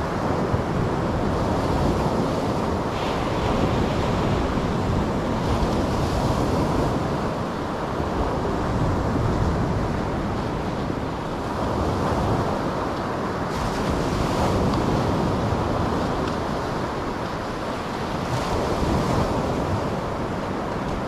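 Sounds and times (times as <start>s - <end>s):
surf breaking on a beach: 0.0s - 21.0s
wind buffeting the microphone: 0.0s - 21.0s.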